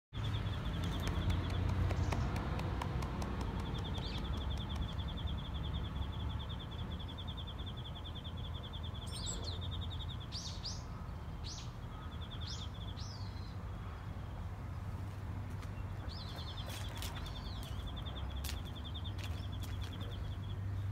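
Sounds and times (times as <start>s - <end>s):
bird chirps: 0.2s - 2.4s, 3.6s - 13.6s.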